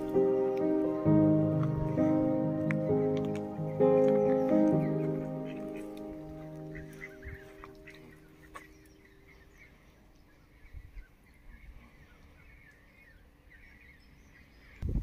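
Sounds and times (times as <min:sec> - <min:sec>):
background music: 0:00.0 - 0:09.2
faint birds chirping: 0:00.0 - 0:15.0.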